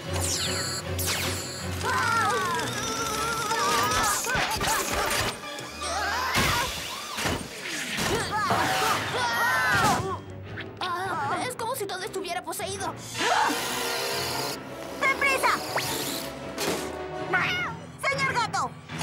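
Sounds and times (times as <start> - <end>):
fast background music: 0.0 - 19.0
children screaming: 1.8 - 4.4, 5.6 - 7.2.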